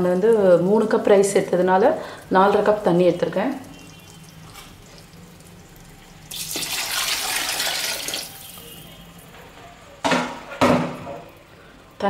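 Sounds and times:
water pouring and splashing: 0:00.0 - 0:09.4.

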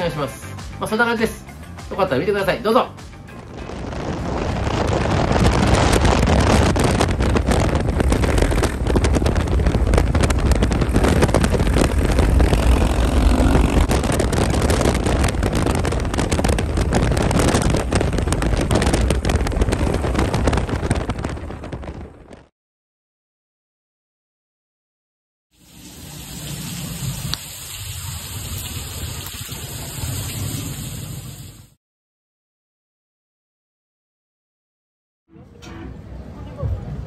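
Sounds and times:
road noise with low rumble: 0:03.1 - 0:21.4
wind rushing on microphone: 0:03.4 - 0:22.5.

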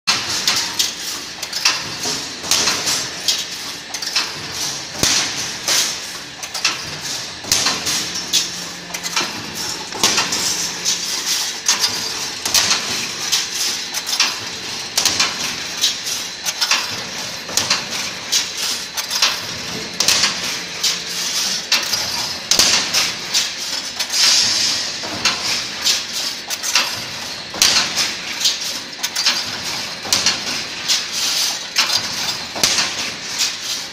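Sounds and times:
welding machine metallic clanks: 0:00.1 - 0:33.9.

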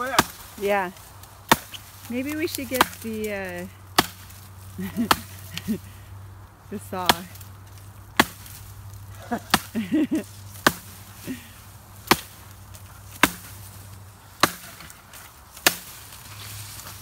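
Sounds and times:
axe chopping wood: 0:00.0 - 0:00.5, 0:01.4 - 0:03.3, 0:03.9 - 0:05.7, 0:07.0 - 0:07.4, 0:08.2 - 0:08.6, 0:09.4 - 0:09.8, 0:10.6 - 0:11.4, 0:12.0 - 0:13.7, 0:14.4 - 0:16.0.

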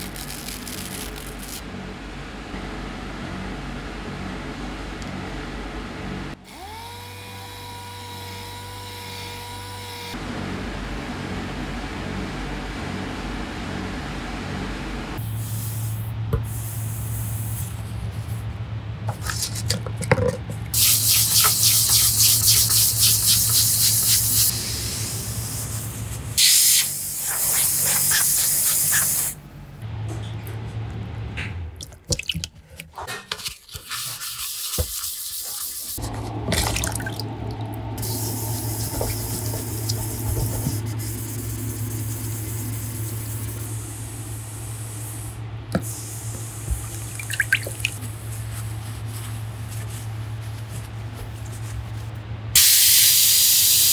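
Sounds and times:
steady low hum: 0:00.0 - 0:32.1, 0:36.0 - 0:52.6
wet sanding hiss: 0:20.8 - 0:29.4.

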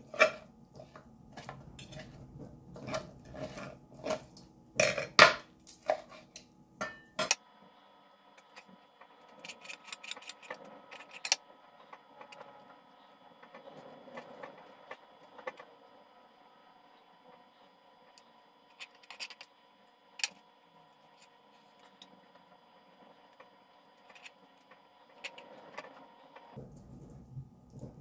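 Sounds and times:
fork and knife scraping a board: 0:00.0 - 0:04.3, 0:05.8 - 0:06.4.

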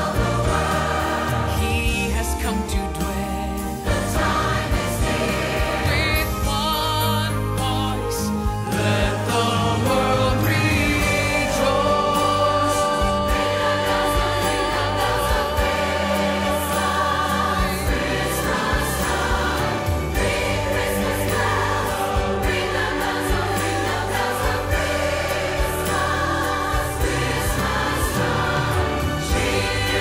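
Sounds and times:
choir singing with vibrato: 0:00.0 - 0:30.0
orchestral accompaniment: 0:00.0 - 0:30.0.

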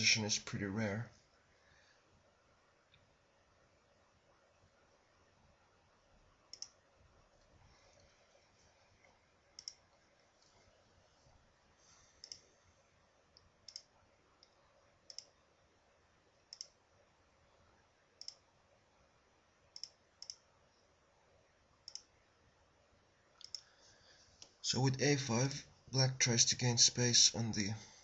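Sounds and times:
faint room hiss: 0:00.0 - 0:28.0
computer mouse clicks: 0:06.5 - 0:06.8, 0:09.0 - 0:10.6, 0:12.2 - 0:12.5, 0:13.3 - 0:15.4, 0:16.5 - 0:16.8, 0:18.2 - 0:18.5, 0:19.7 - 0:20.5, 0:21.8 - 0:22.1, 0:23.4 - 0:23.7.

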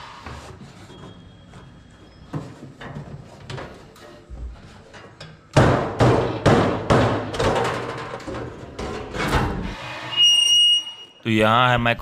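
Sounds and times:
knocks and bangs on sheet metal: 0:05.5 - 0:09.6.

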